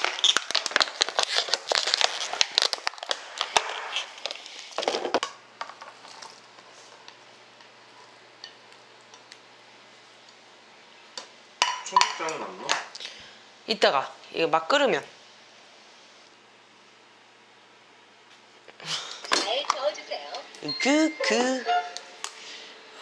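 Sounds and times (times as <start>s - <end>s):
crinkling and crackling handling: 0.0s - 7.2s.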